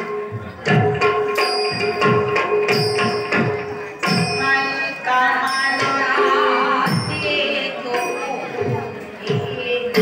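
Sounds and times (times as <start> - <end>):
hand drum: 0.0 - 5.0.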